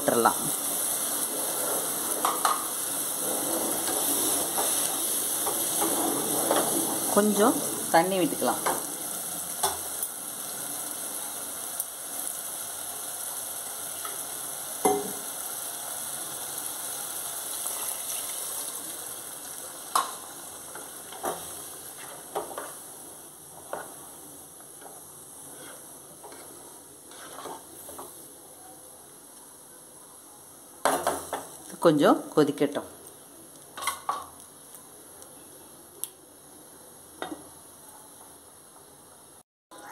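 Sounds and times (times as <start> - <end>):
gravy sizzling in pot: 0.0 - 39.9
spatula tapping and scraping pot: 25.6 - 28.1.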